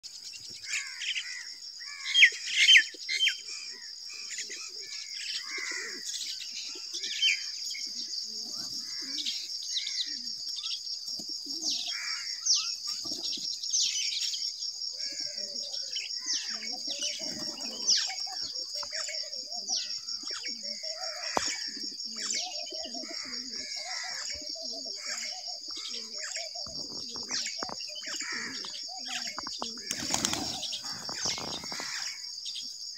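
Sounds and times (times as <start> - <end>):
small birds chirping: 0.0 - 32.9
pigeons cooing: 0.8 - 14.3, 14.9 - 32.2
wings fluttering: 29.2 - 32.2.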